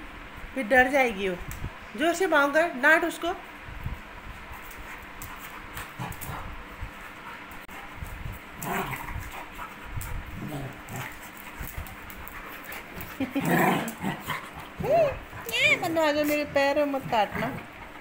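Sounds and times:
dogs scuffling and mouthing: 3.8s - 18.0s.

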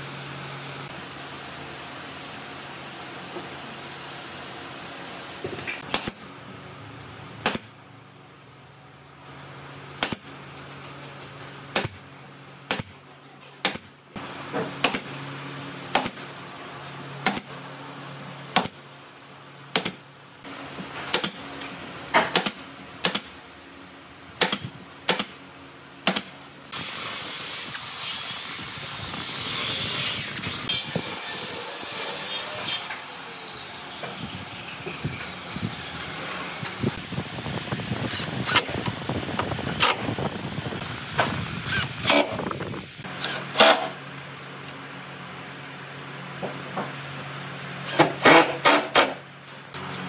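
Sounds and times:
nail gun shots: 5.8s - 6.2s, 7.4s - 7.7s, 10.0s - 10.3s, 12.7s - 13.0s, 13.6s - 13.9s, 14.8s - 15.1s, 15.9s - 16.2s, 17.2s - 17.5s, 19.7s - 20.0s, 21.1s - 21.4s, 22.2s - 23.3s, 24.4s - 25.4s, 26.0s - 26.3s, 43.2s - 44.0s, 47.9s - 49.2s.

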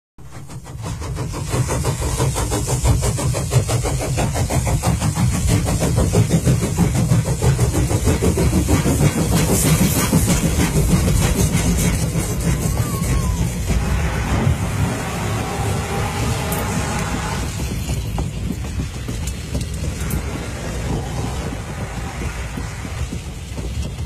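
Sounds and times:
train running: 0.2s - 24.0s.

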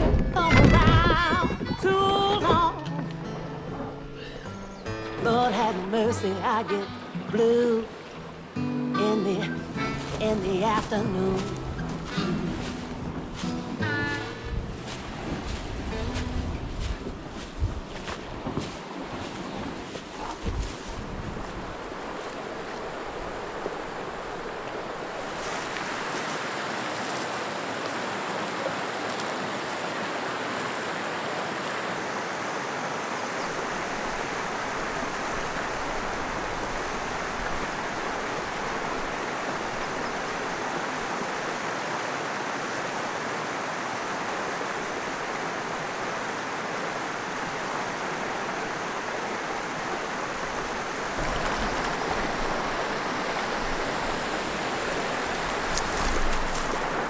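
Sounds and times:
water rushing in brook: 0.0s - 57.0s.

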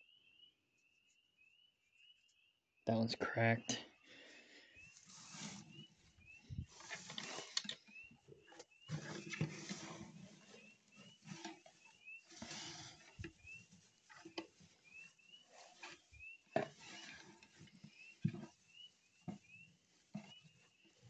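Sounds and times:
hand rustling through straw: 4.9s - 7.6s, 8.9s - 21.0s.

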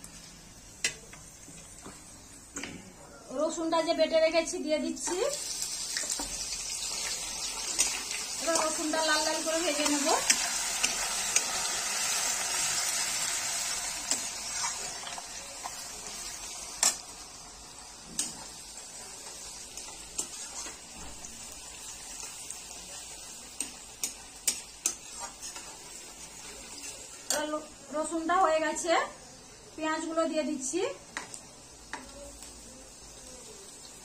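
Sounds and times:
stirring scraping against pan: 5.0s - 17.1s, 18.2s - 27.6s
paste sizzling in hot oil: 5.0s - 28.2s.

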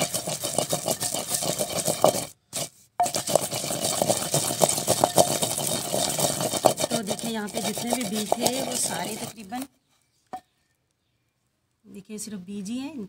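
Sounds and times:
wooden pestle grinding in mortar: 0.0s - 9.7s.

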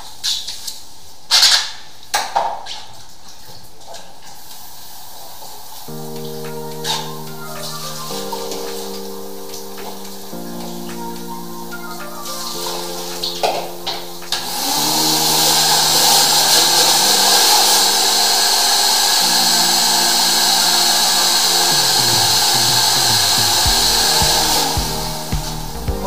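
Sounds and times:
background music: 5.9s - 26.0s
vacuum rushing hiss: 14.0s - 26.0s.

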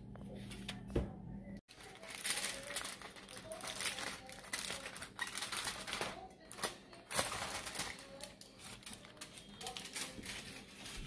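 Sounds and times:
aluminium foil crinkling: 1.7s - 11.0s.

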